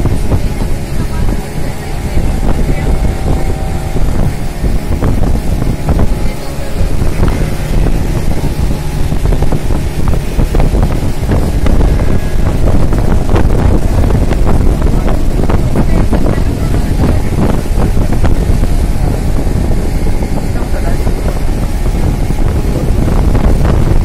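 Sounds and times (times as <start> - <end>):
motorboat engine running: 0.0 - 24.0
wind buffeting microphone: 0.0 - 24.0.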